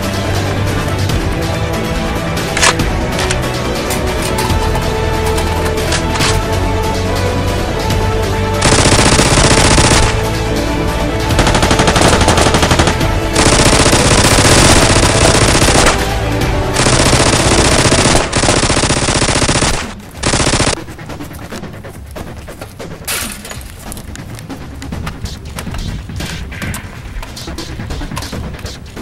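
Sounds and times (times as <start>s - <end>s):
background music: 0.0s - 29.0s
automatic gunfire bursts: 8.6s - 10.3s, 11.3s - 20.8s.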